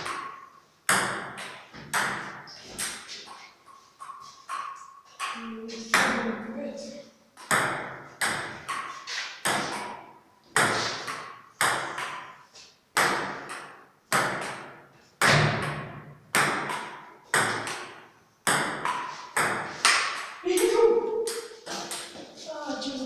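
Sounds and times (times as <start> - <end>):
table tennis ball knocking: 0.0 - 3.1, 7.4 - 12.4, 13.0 - 22.2.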